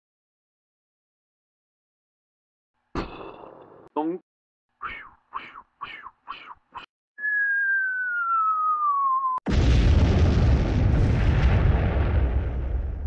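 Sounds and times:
falling whistle: 7.2s - 9.5s
cartoon explosion with rumble: 9.5s - 13.0s.

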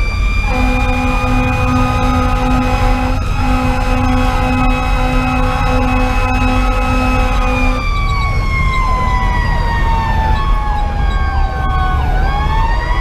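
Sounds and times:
diesel engine rumble: 0.0s - 13.0s
mechanical siren wailing: 0.0s - 13.0s
steady low horn note: 0.4s - 8.0s.

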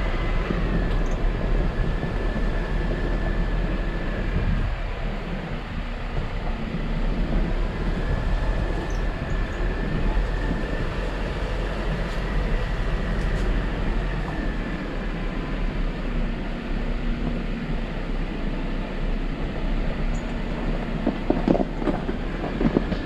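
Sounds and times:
vehicle engine and tyre noise: 0.0s - 23.0s.

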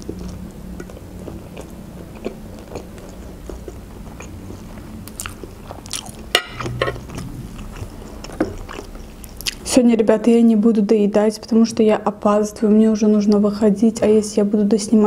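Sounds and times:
person chewing noodles: 0.0s - 9.6s.

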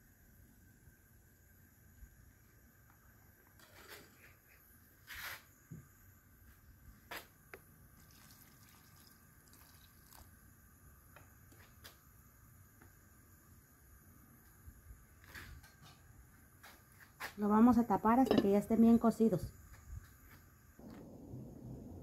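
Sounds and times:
water pouring into metal pot: 8.0s - 10.3s
metal ladle knocking against pot: 18.3s - 18.6s.

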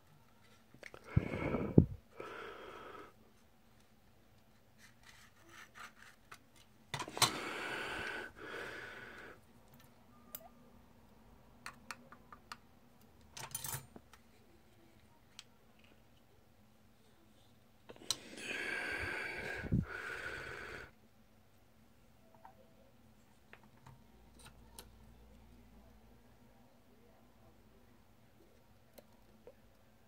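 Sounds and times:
knife scraping plastic: 4.8s - 6.4s.

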